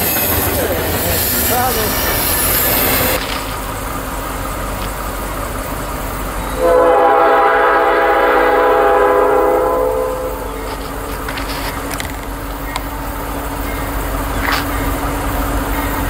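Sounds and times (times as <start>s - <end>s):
low steady train rumble: 0.0s - 16.0s
locomotive air horn: 6.6s - 11.4s.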